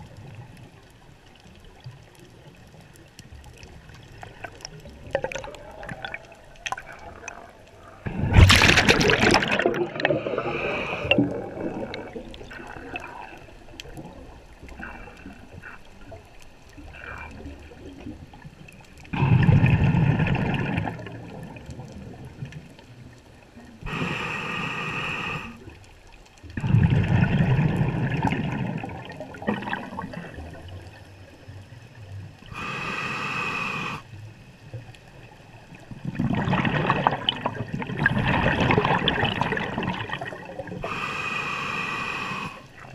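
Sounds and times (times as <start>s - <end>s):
exhaled bubbles gurgling underwater: 0.0s - 42.9s
regulator inhalation hiss: 23.9s - 25.6s, 32.5s - 34.1s, 40.8s - 42.8s.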